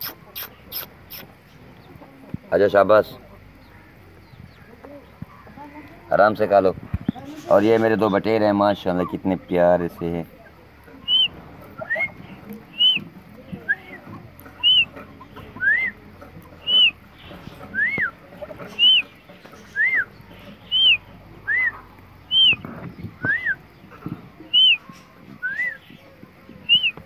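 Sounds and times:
quail whistled chirps: 11.0s - 23.7s, 24.4s - 26.0s, 26.6s - 27.0s.

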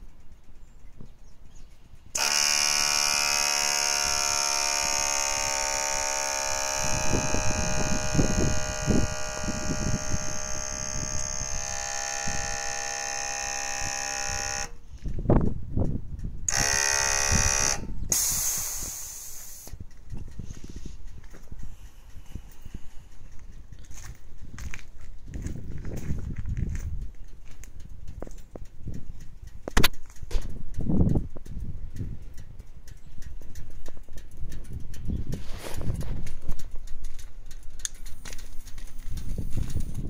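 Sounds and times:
air compressor buzzing: 2.1s - 15.2s, 16.5s - 24.1s
air hiss: 18.1s - 19.8s
low thuds and rumbles: 19.8s - 40.0s.

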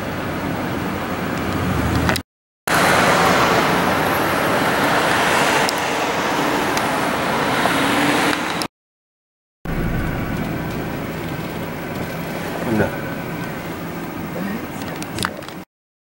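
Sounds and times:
car road noise: 0.0s - 8.7s, 9.7s - 15.5s
passing traffic: 0.0s - 8.7s, 9.7s - 15.0s.

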